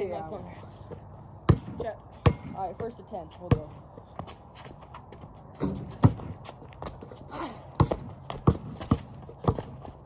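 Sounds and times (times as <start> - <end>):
basketball bouncing on concrete: 0.9 - 10.0
footsteps scuffing on concrete: 3.5 - 7.1.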